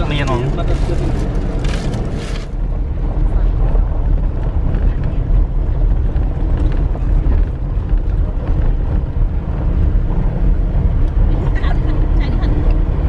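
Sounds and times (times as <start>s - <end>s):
engine and tyre rumble: 0.0s - 13.0s.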